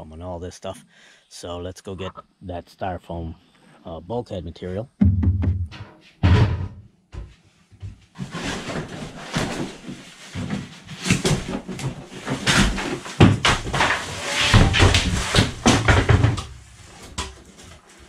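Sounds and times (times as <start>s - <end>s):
sharp knocks: 5.0s - 6.8s
foam boards scraping: 8.2s - 18.0s.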